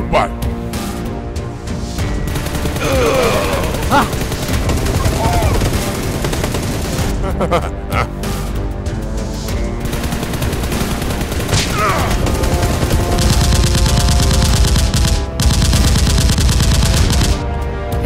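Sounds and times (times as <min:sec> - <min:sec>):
rapid automatic gunfire: 0:02.2 - 0:07.2, 0:09.8 - 0:17.4.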